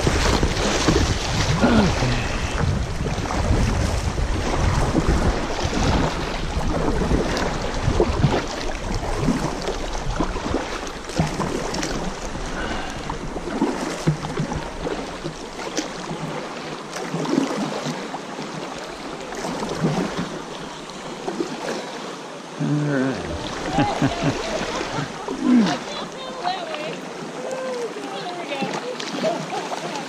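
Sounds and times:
wind rumble on microphone: 0:00.0 - 0:15.4
paddle splashes: 0:00.0 - 0:30.0
river current rushing and splashing: 0:00.0 - 0:30.0.

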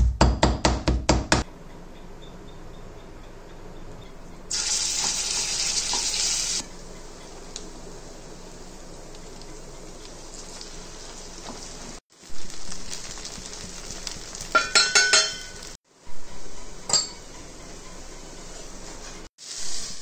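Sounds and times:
paste sizzling in hot oil: 0:04.5 - 0:06.6, 0:07.4 - 0:14.8, 0:19.4 - 0:20.0
metallic clinks of utensils on pan: 0:14.5 - 0:15.8, 0:16.8 - 0:17.4.

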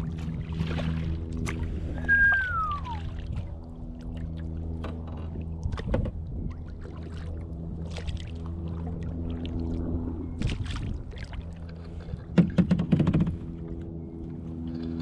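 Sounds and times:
paddle splashes and drips: 0:00.0 - 0:12.6
steady low hum: 0:00.0 - 0:15.0
water lapping at hull: 0:00.0 - 0:15.0
descending whistle: 0:02.0 - 0:03.0.

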